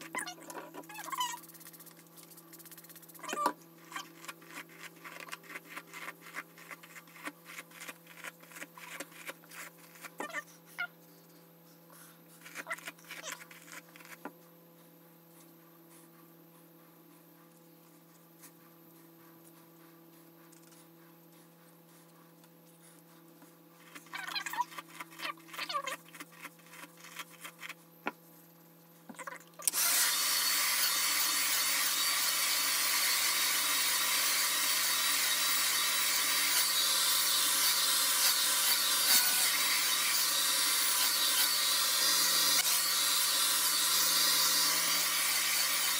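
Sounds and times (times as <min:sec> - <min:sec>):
hair dryer blowing: 0:29.7 - 0:31.4.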